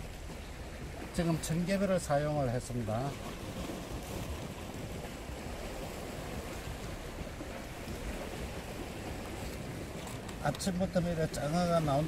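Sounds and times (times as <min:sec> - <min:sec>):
small waves on rocky shore: 0:00.0 - 0:12.0
wind on microphone: 0:03.1 - 0:12.0.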